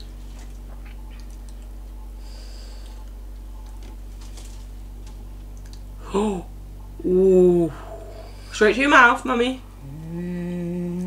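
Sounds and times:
steady low hum: 0.0s - 11.0s
chewing: 0.2s - 2.0s.

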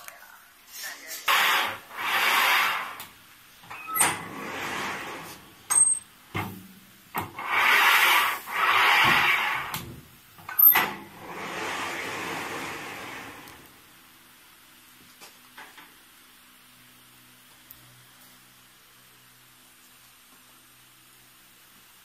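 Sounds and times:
machine hissing: 1.1s - 3.0s, 7.3s - 9.8s.

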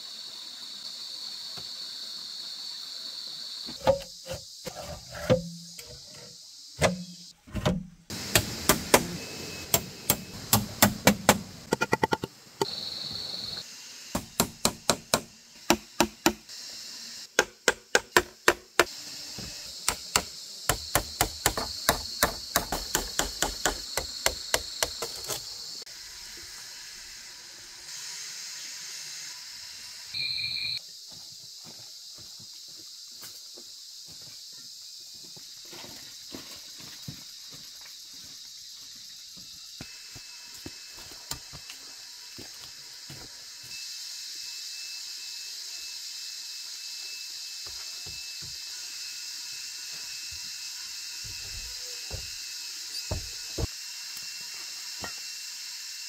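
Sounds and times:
steady high hiss: 0.0s - 4.7s, 8.1s - 17.4s, 18.8s - 56.0s
hand tool sharp strikes: 3.8s - 6.0s, 8.2s - 12.2s, 14.2s - 16.4s, 19.8s - 25.4s.

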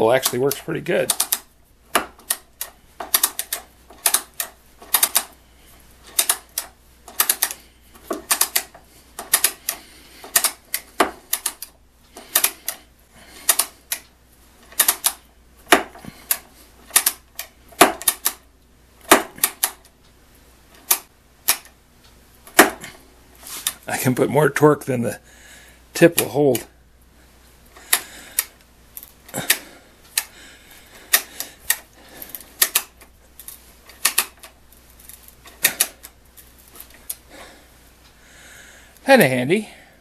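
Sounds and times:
ratcheting screwdriver clicking: 2.2s - 5.4s, 6.1s - 12.8s, 13.5s - 14.0s, 14.7s - 15.2s, 16.3s - 18.4s.

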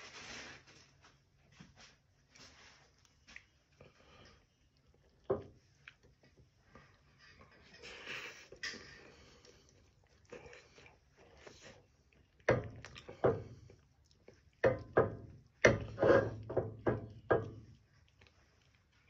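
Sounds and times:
dull knocks in a skillet: 14.6s - 17.6s.

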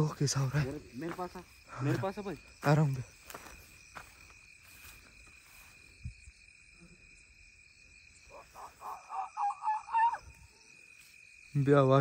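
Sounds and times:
night insects chirring: 0.0s - 12.0s
short pitched calls: 8.3s - 10.7s.

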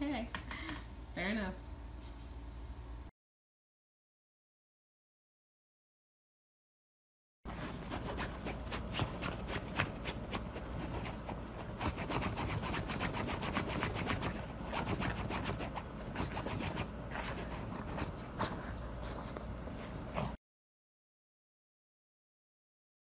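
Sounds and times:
dog paws scratching fabric: 7.5s - 20.4s.

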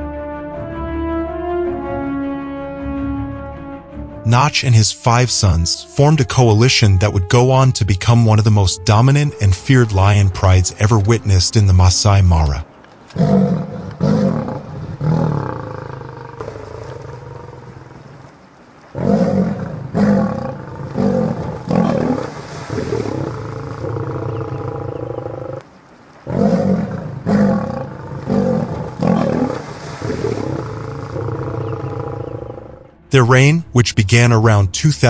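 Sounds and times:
lions growling and snarling: 13.1s - 18.1s, 18.9s - 25.6s, 26.2s - 32.9s.

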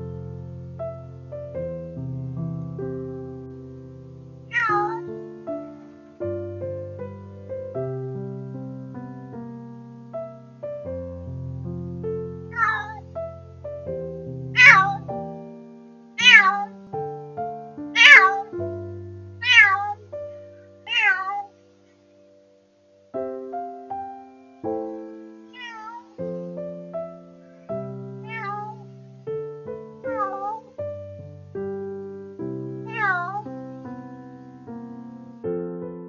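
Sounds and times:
soft piano music: 0.0s - 36.0s
cat meowing: 4.5s - 5.1s, 12.5s - 13.1s, 14.6s - 15.2s, 16.2s - 16.8s, 18.0s - 18.7s, 19.4s - 20.0s, 20.9s - 21.5s, 25.5s - 26.2s, 28.2s - 28.9s, 30.1s - 30.7s, 32.8s - 33.5s.

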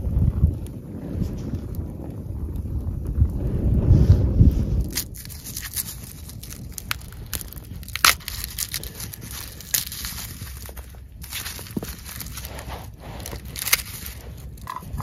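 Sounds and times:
wind rumble on microphone: 0.0s - 15.0s
garlic skin crinkling: 4.8s - 15.0s.

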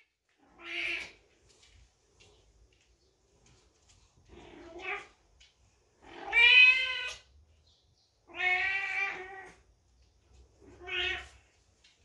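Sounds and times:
cat meowing loudly: 0.0s - 1.2s, 6.1s - 7.2s, 8.3s - 9.6s, 10.7s - 11.4s.

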